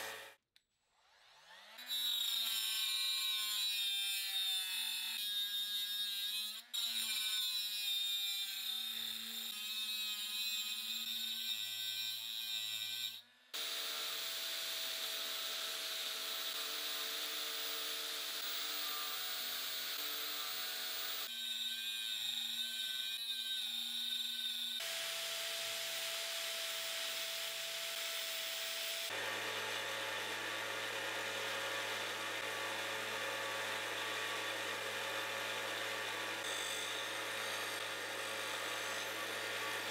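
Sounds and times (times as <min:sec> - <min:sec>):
power tool motor whine: 0:24.7 - 0:39.9.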